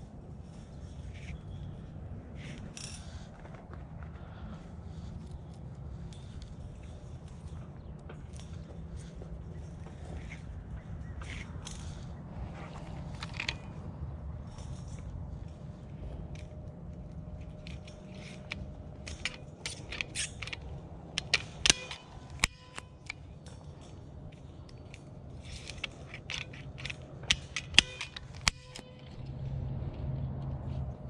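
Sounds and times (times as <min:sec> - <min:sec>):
cable-tie gun clicking: 0:16.4 - 0:29.2.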